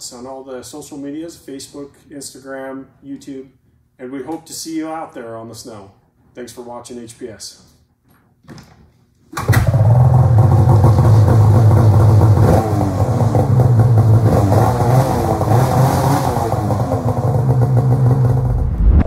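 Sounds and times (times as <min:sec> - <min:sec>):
snowmobile engine revving: 0:12.4 - 0:18.6.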